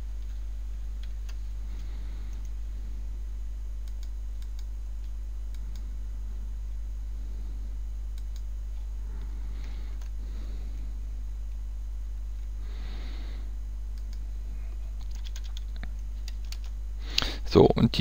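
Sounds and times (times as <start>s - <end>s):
low electrical hum: 0.0s - 18.0s.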